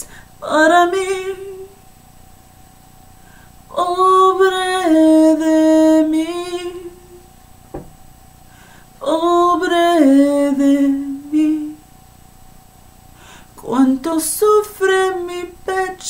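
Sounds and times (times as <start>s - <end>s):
woman singing unaccompanied: 0.0s - 1.8s, 3.7s - 7.3s, 9.0s - 11.8s, 13.6s - 16.0s.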